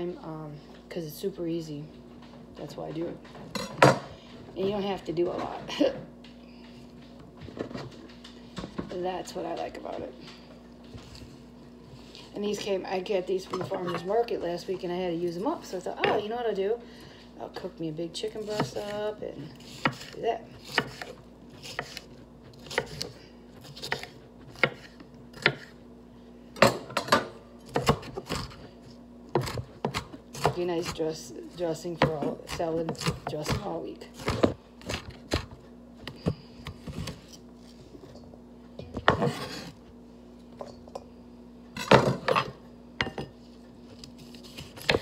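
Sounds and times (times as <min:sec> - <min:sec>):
knife chopping on cutting board: 0:19.6 - 0:25.7, 0:26.6 - 0:28.6, 0:29.4 - 0:31.0, 0:32.0 - 0:37.3, 0:44.2 - 0:45.0.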